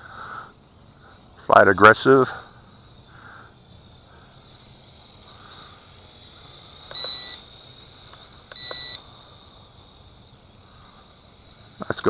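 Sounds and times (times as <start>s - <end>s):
high whine of drone motors: 0.0s - 12.0s
short electronic beeps: 6.9s - 7.5s, 8.5s - 9.1s.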